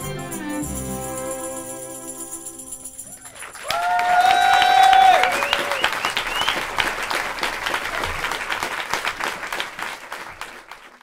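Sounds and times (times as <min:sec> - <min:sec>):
audience applauding: 0:03.1 - 0:11.0.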